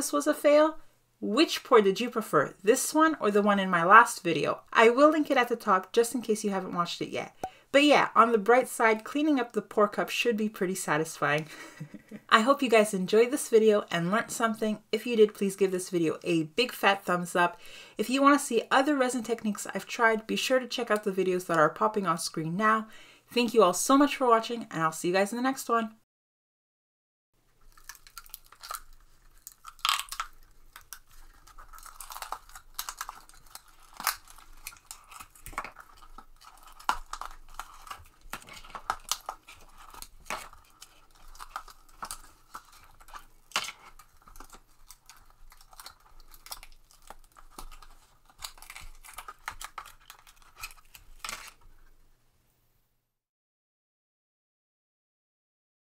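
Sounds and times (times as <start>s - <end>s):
resin cracking and popping out: 27.6s - 51.6s.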